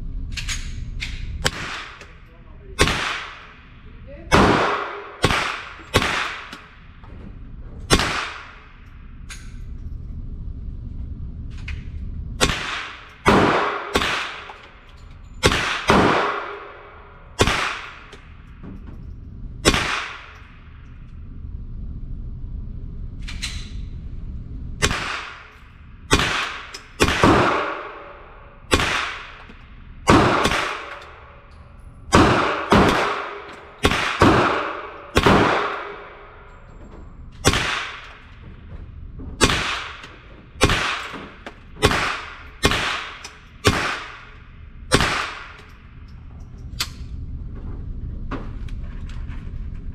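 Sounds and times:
rifle shots echoing indoors: 0.2s - 7.1s, 7.9s - 9.6s, 11.7s - 19.0s, 19.6s - 21.3s, 24.8s - 38.6s, 39.3s - 47.1s.

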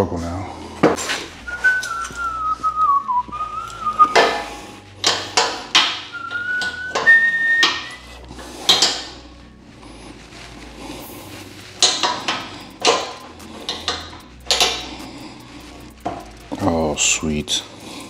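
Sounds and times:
person whistling a tune: 1.5s - 4.5s, 5.8s - 8.0s
hand tools clanking on metal: 4.0s - 8.0s, 8.6s - 9.2s, 11.8s - 15.1s.

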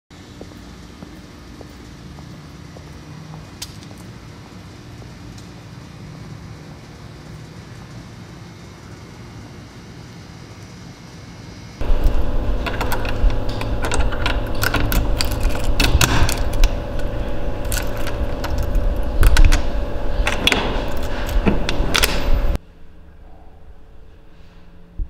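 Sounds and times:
low rumble: 11.8s - 22.6s.

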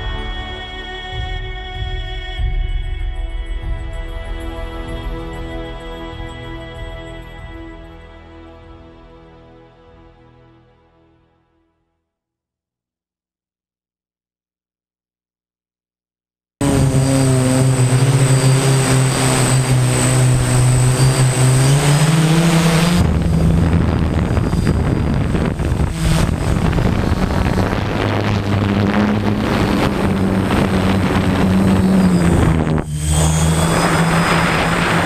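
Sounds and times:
quadcopter motors buzzing: 16.6s - 35.0s.

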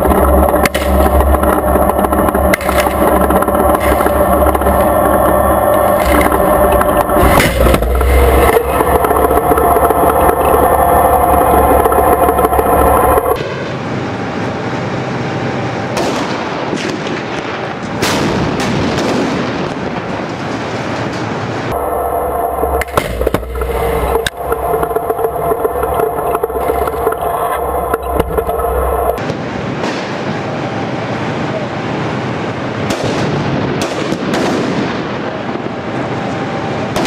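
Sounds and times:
combat ambience: 0.0s - 13.4s, 21.7s - 29.2s
tank engine droning: 0.0s - 18.1s, 19.9s - 37.0s.

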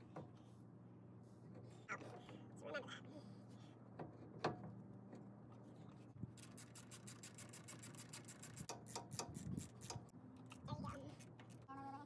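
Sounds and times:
hand ratchet clicking: 6.4s - 10.1s.

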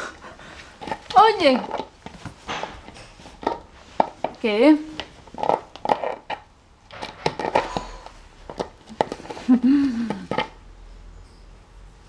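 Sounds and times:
dog chewing plastic bottle: 0.6s - 4.4s, 5.0s - 10.6s.

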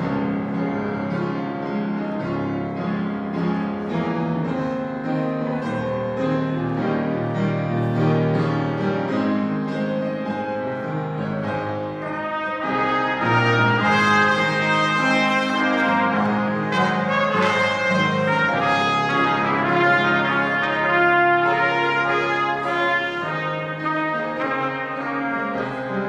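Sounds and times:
slow piano melody: 0.0s - 26.0s
trumpets playing: 11.9s - 26.0s.

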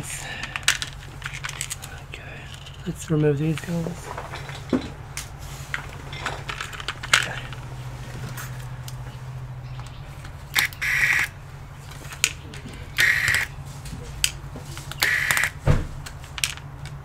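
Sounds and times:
hands handling parts and screws: 0.0s - 17.0s
powered screwdriver running: 10.6s - 11.3s, 13.0s - 13.5s, 15.0s - 15.6s.

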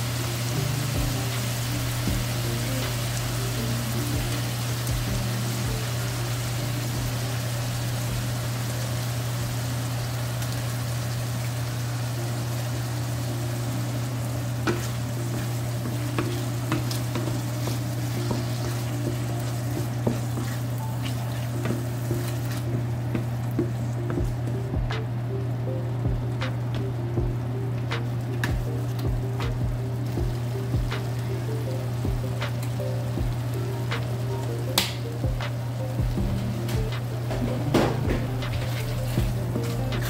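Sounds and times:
meat and onions sizzling in pan: 0.0s - 24.5s, 27.3s - 40.0s
steady low hum: 0.0s - 40.0s
wooden spatula scraping pan: 14.7s - 22.7s.

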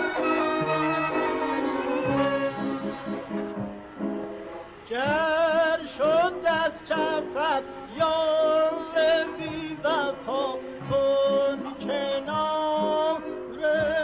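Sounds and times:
instrumental accompaniment: 0.0s - 14.0s
man singing with ornaments: 4.9s - 14.0s.

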